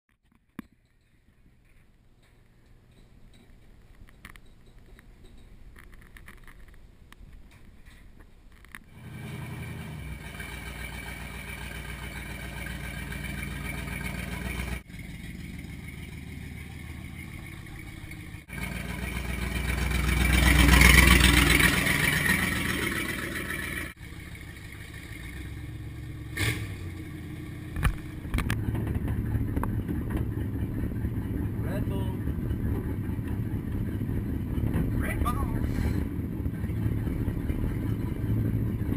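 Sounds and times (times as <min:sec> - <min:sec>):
pickup truck engine running: 0:08.9 - 0:38.9.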